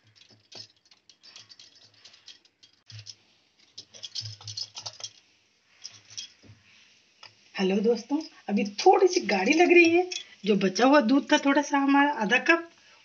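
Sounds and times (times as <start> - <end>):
wire whisk beating batter: 0.0 - 5.2.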